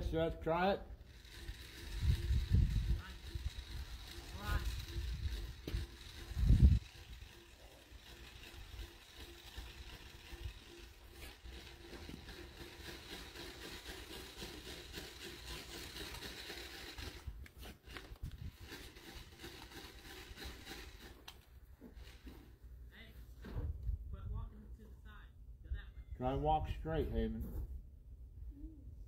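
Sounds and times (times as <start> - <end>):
rope-making machine rattling: 1.0 - 22.4.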